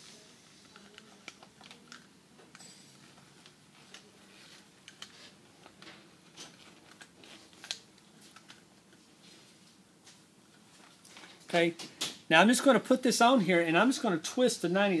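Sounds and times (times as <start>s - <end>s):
wire handling clicks and rustles: 0.6s - 12.2s.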